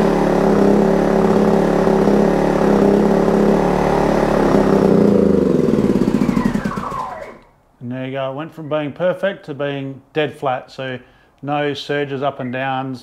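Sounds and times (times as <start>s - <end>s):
generator falling whine: 0.0s - 7.6s
portable generator running and stumbling: 0.0s - 7.6s.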